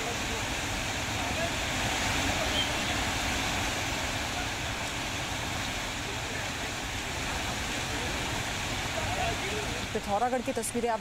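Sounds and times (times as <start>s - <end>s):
flood water rushing with rocks: 0.0s - 11.0s.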